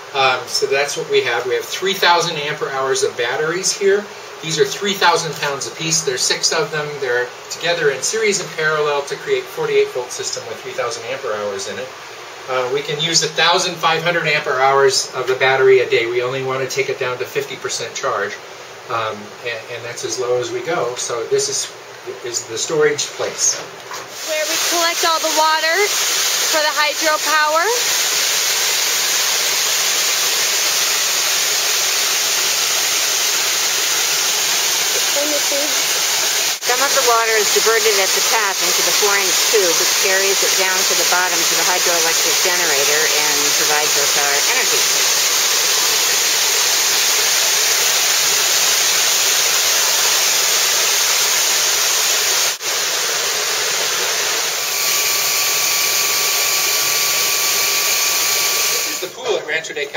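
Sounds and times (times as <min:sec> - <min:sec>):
turbine generator whine: 0:24.3 - 0:59.2.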